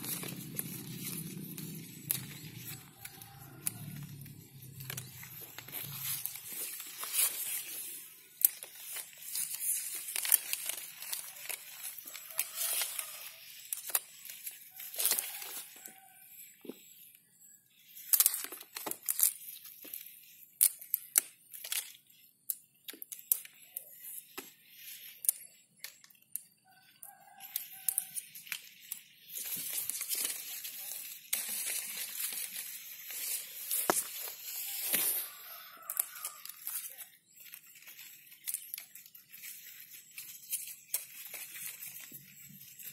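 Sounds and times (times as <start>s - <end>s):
fingers brushing through leaves: 0.0s - 16.2s, 27.4s - 42.9s.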